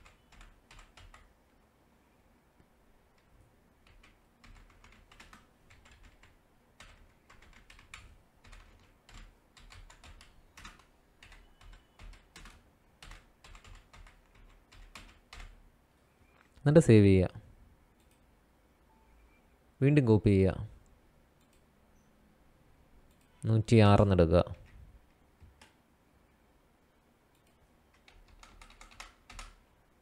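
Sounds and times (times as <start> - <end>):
typing on keyboard: 0.0 - 1.3, 3.2 - 15.6, 27.4 - 29.6.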